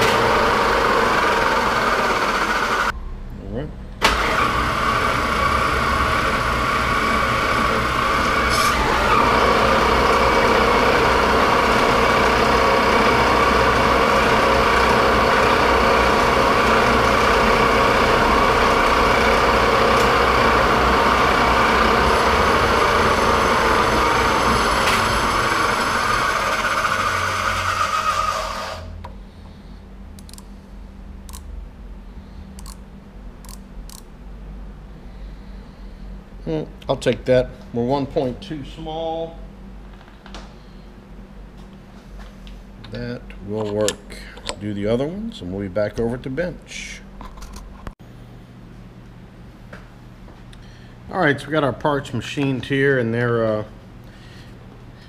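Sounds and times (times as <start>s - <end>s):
metal lathe whine: 0.0s - 2.9s, 4.0s - 29.0s.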